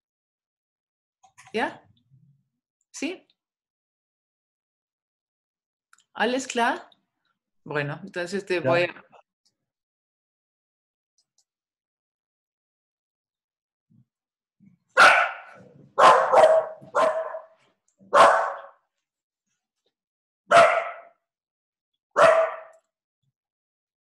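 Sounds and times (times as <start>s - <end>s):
dog barking: 15.0s - 18.8s, 20.5s - 21.2s, 22.2s - 22.8s.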